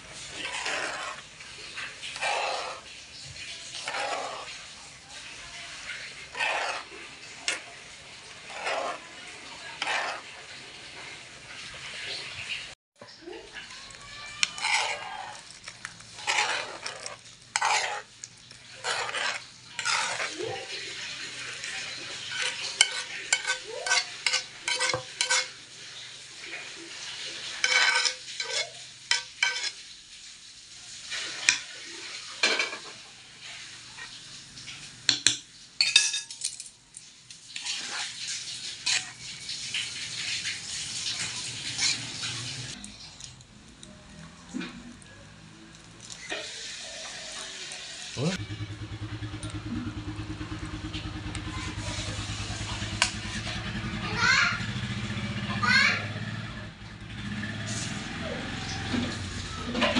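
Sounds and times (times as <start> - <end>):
utensils scraping a frying pan: 0.0 - 12.6, 13.5 - 30.0, 30.9 - 36.4, 37.4 - 43.1, 46.0 - 48.4, 51.0 - 53.8
wet stirring of pasta: 0.0 - 48.4, 49.0 - 54.0.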